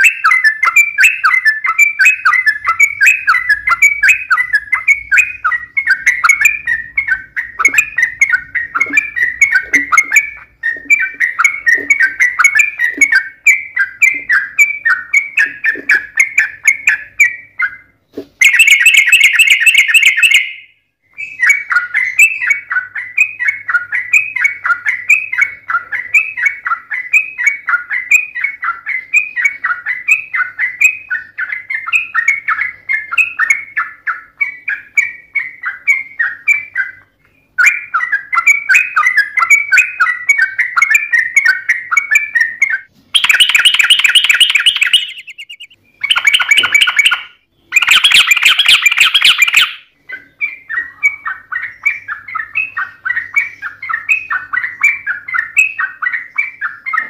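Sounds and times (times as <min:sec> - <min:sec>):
bulbul singing chattering notes: 0:00.0 - 0:17.7, 0:18.4 - 0:20.7, 0:37.6 - 0:49.9.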